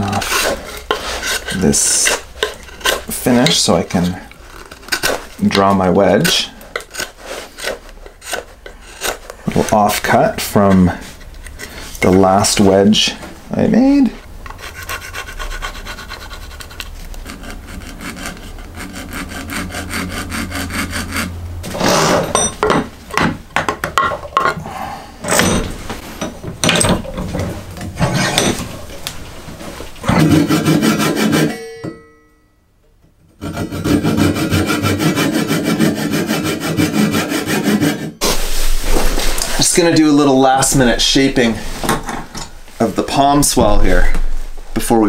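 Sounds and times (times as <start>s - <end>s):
hand saw cutting wood: 0.0s - 11.0s, 14.5s - 22.3s, 30.0s - 31.6s, 33.4s - 38.3s
irregular knocks and handling: 22.1s - 30.3s, 41.7s - 44.8s.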